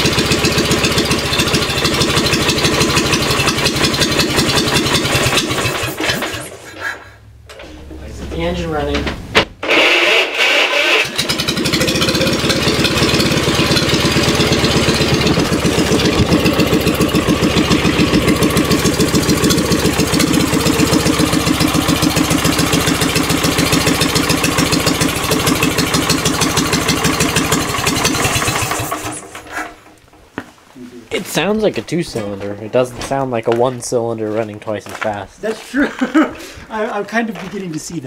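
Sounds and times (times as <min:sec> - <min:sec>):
two-cylinder engine running: 0:00.0 - 0:29.5.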